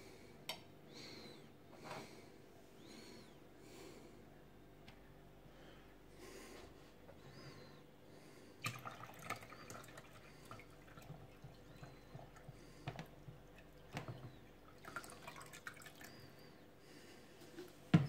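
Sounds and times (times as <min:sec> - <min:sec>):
water trickling into plastic reservoir: 0:08.6 - 0:16.2.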